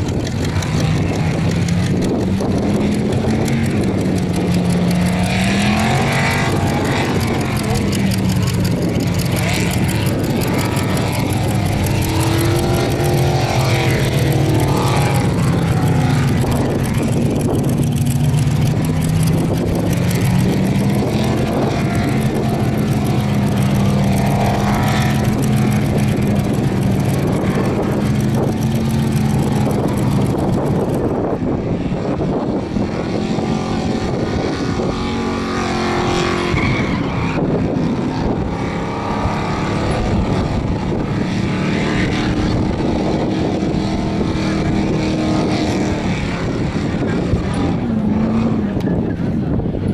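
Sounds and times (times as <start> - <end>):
tyres spinning: 0.0 - 31.3
car engine at high revs: 0.0 - 49.9.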